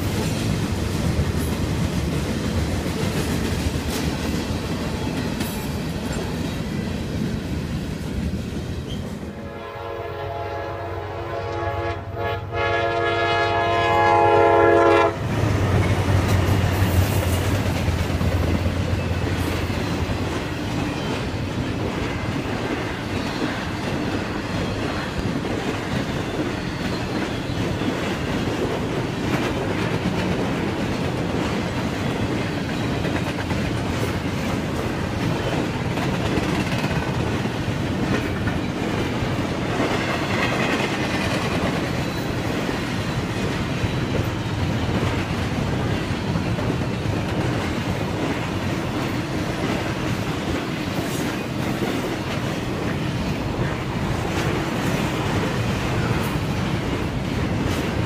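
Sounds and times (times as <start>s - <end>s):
freight train wheel clatter: 0.0s - 9.4s, 15.0s - 58.0s
locomotive air horn blasts: 9.3s - 15.3s.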